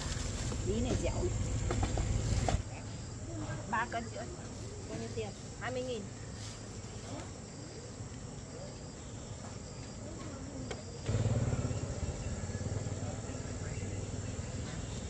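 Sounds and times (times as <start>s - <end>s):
faint voices: 0.0s - 15.0s
insects chirring: 0.0s - 15.0s
low engine hum: 11.0s - 15.0s.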